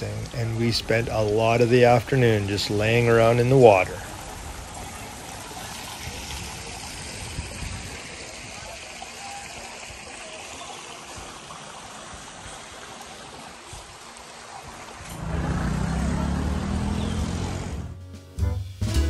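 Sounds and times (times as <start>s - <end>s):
fountain water splashing: 0.0s - 18.0s
loud low rumble: 15.2s - 18.0s.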